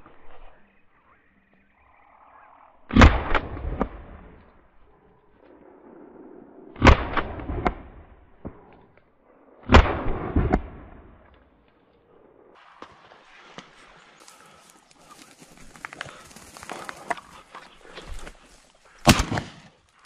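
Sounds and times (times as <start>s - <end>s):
shotgun shots: 6.8s - 8.0s, 9.6s - 11.0s, 19.0s - 19.7s.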